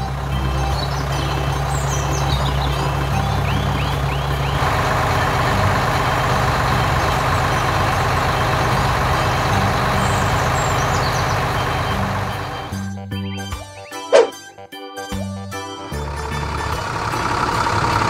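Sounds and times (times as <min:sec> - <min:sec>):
cartoon bulldozer engine rumble: 0:00.0 - 0:13.1, 0:15.8 - 0:18.0
short high squeaks: 0:14.1 - 0:14.4.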